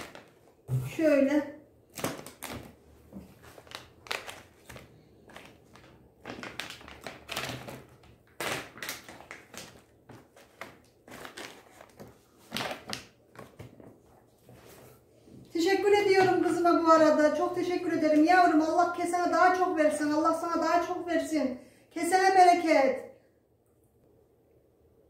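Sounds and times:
plastic pouches rustling: 0.0s - 0.7s, 1.9s - 14.0s.

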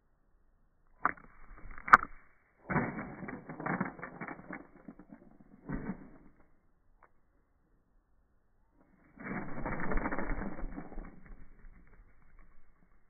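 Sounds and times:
bird rattling seeds in plastic dish: 2.9s - 6.3s.

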